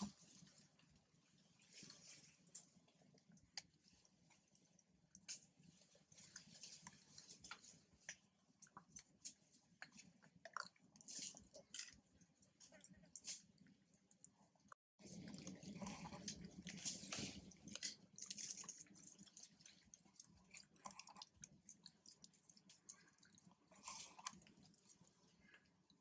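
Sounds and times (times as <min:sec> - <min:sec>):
monkeys chewing: 0:15.1 - 0:25.6.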